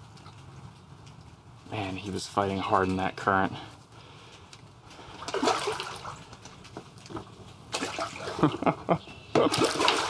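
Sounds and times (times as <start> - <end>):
water splashing and gurgling: 5.1 - 6.4, 7.7 - 8.6, 9.4 - 10.0.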